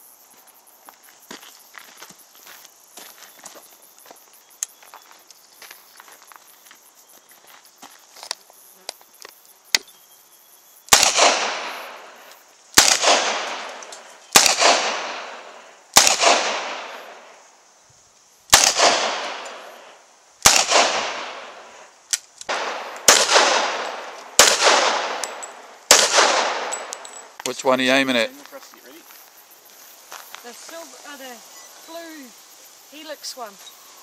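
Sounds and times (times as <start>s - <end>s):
handgun shots echoing: 10.9s - 11.8s, 12.8s - 15.4s, 16.0s - 17.0s, 18.5s - 19.6s, 20.4s - 21.6s, 22.4s - 27.2s.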